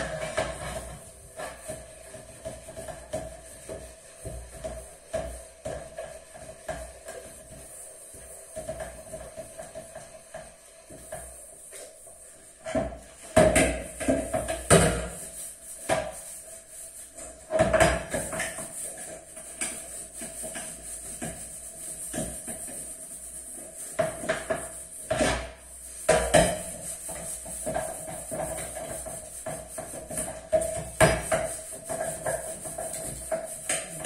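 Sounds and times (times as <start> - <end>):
dishes and pans clattering: 12.7 - 15.2, 24.0 - 34.0.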